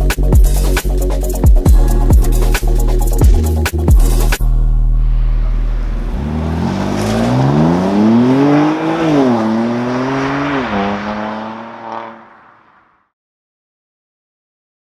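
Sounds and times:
car engine accelerating hard: 4.8 - 13.0.

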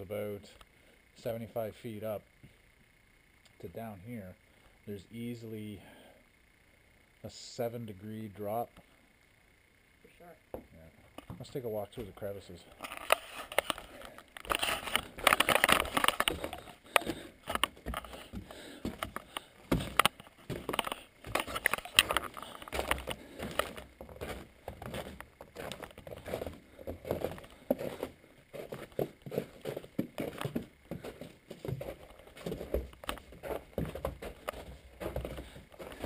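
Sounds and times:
camera handling rustle: 12.8 - 23.9
footsteps on wooden stairs: 14.5 - 36.0.

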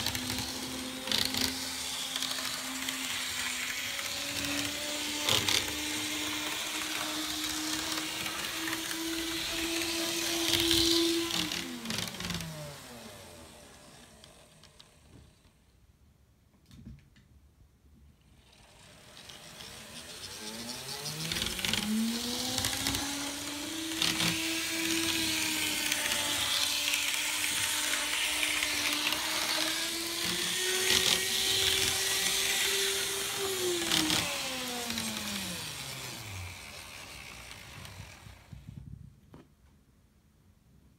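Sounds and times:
model train motor whining: 0.0 - 15.7, 18.2 - 38.8.

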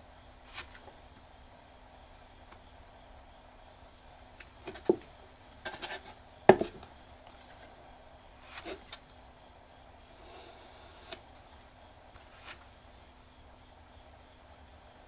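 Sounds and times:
box knocking and scraping on wood: 5.7 - 6.8.

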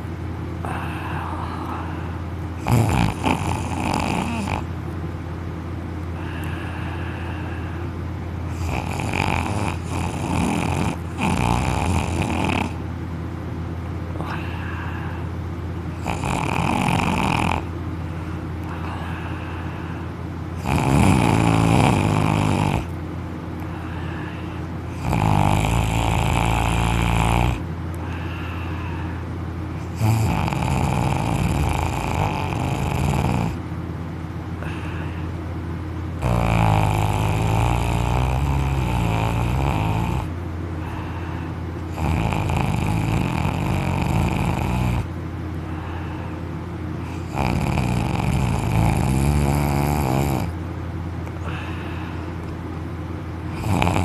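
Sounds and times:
steady low hum: 0.0 - 54.0
man snoring loudly: 2.6 - 4.7, 8.5 - 12.8, 16.0 - 17.7, 20.6 - 22.9, 24.9 - 28.2, 29.8 - 33.6, 36.2 - 40.3, 41.9 - 45.2, 47.0 - 50.6, 53.5 - 54.0.

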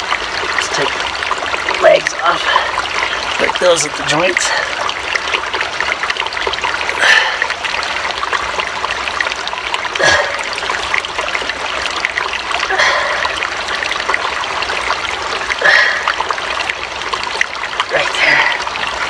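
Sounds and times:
water trickling and splashing: 0.0 - 19.0.

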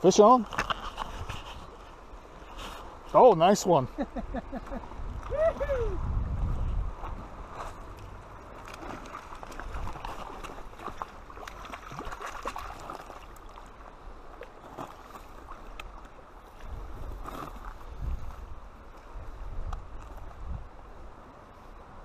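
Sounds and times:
fish splashing and thrashing: 7.0 - 16.2
small sharp splashes and clicks: 7.9 - 16.2.

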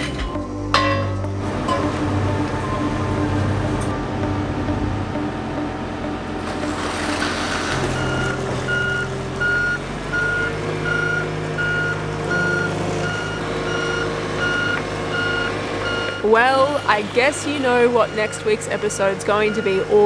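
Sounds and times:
engine humming: 0.0 - 20.0
warning beeper beeping: 7.8 - 20.0.

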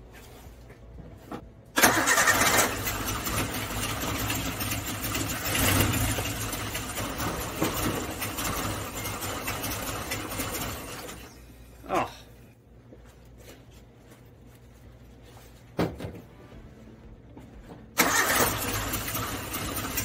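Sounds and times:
car engine starting and running: 1.7 - 11.5, 17.9 - 20.0.

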